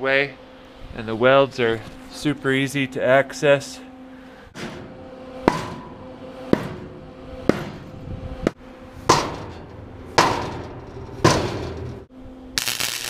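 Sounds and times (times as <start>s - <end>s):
hammer striking steel plating: 9.0s - 11.9s.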